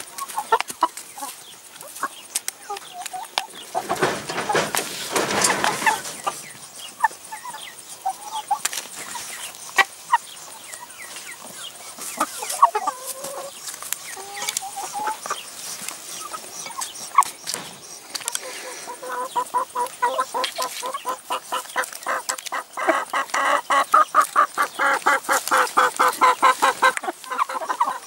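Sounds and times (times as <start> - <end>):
hens clucking softly: 0.1 - 28.0
rustling scuffle: 3.5 - 6.8.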